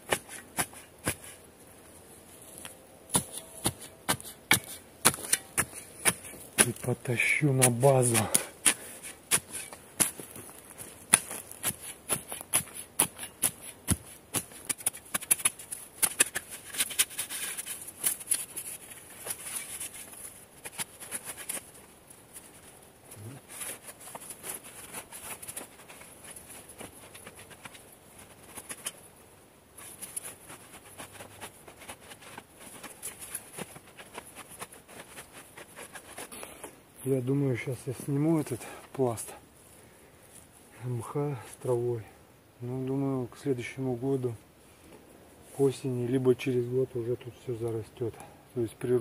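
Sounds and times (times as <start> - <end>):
hands pulling moss rustling: 0.0 - 42.0
forest litter crackling underfoot: 0.1 - 42.1
spade cutting into turf: 3.1 - 6.7.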